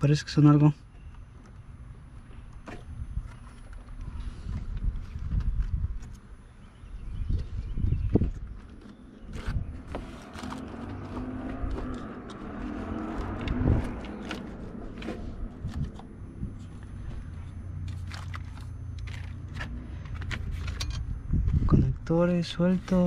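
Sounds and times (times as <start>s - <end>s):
low steady hum: 0.0s - 23.0s
clicks and scrapes of wiring: 8.3s - 16.8s.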